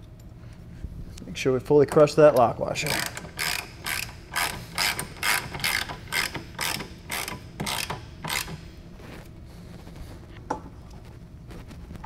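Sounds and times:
socket ratchet clicking: 2.8s - 8.7s.

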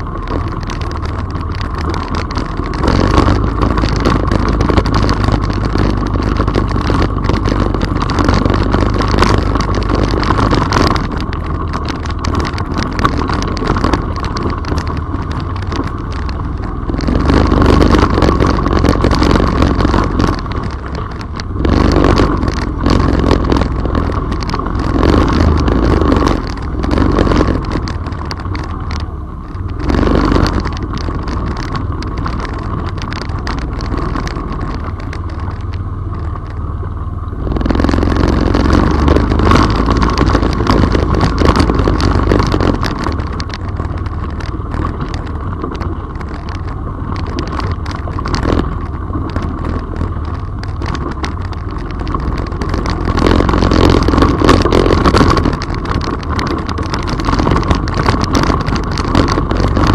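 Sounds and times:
quad engine running: 0.0s - 59.9s
water splashing under wheels: 0.0s - 59.9s.

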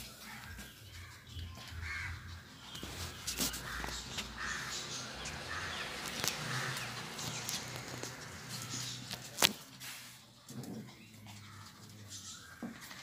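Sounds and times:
harsh animal calls: 1.8s - 9.4s
clicks and rustling: 2.7s - 9.8s.

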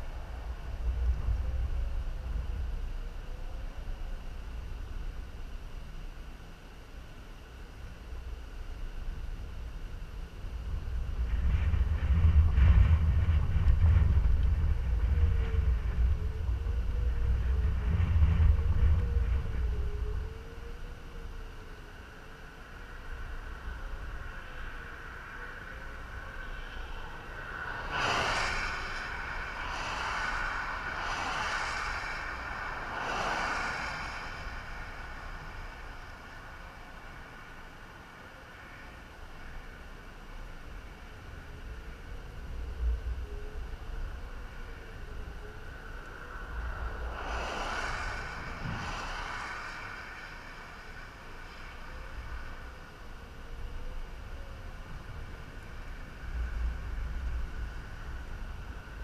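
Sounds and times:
car tyre and road noise: 0.0s - 59.0s
steady low rumble: 0.0s - 59.0s
cars passing at speed: 27.0s - 38.2s, 45.7s - 53.0s.

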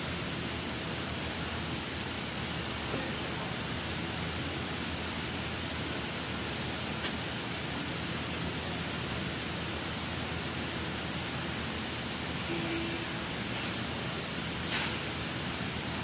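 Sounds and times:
rushing air hiss: 13.1s - 16.0s.

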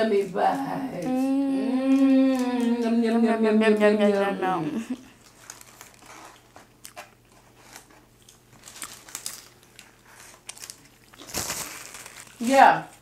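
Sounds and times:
paper wrappers crinkling: 5.2s - 13.0s.

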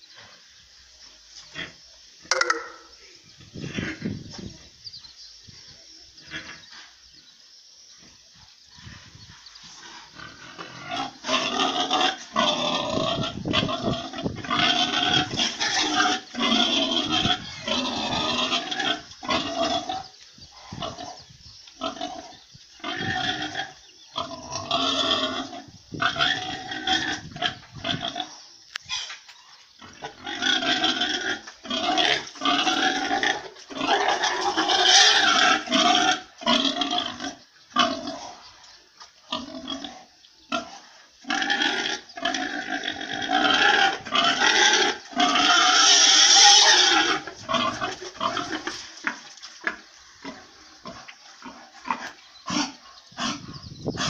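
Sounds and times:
pigs calling: 1.5s - 4.3s, 9.2s - 54.0s.

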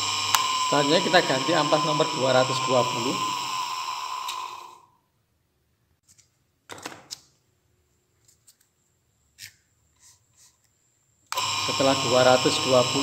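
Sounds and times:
polishing motor hum: 0.0s - 4.8s, 11.3s - 13.0s.

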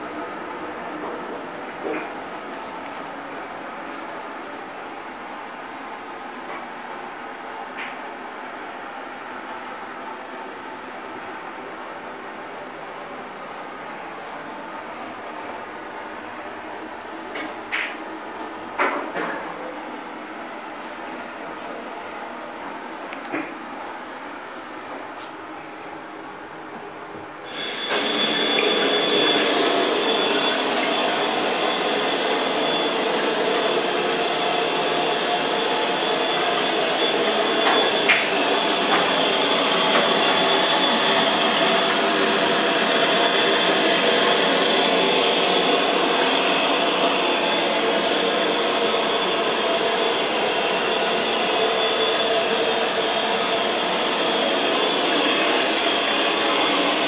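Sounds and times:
faucet running into sink: 27.4s - 57.0s.

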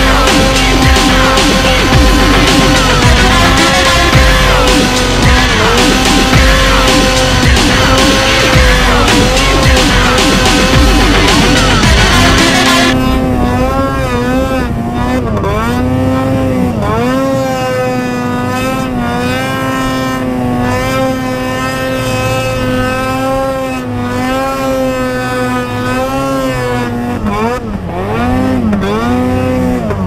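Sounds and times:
soundtrack music: 0.0s - 14.3s
snowmobile engine at high revs: 0.0s - 30.0s.

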